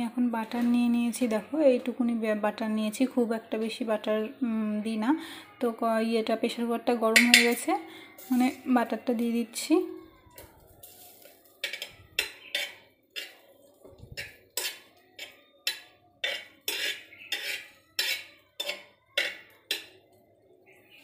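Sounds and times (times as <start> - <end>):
metal spoon scraping pot: 7.1 - 8.9, 10.3 - 20.1.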